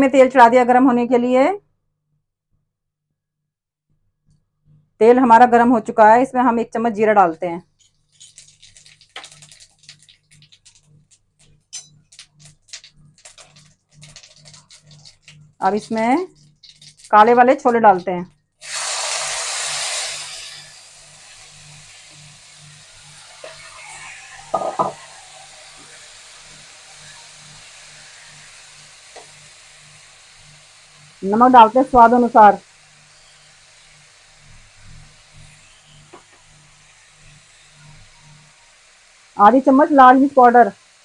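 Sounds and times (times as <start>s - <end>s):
seeds sizzling in hot oil: 7.3s - 41.0s
spoon knocking against pan: 24.6s - 25.0s.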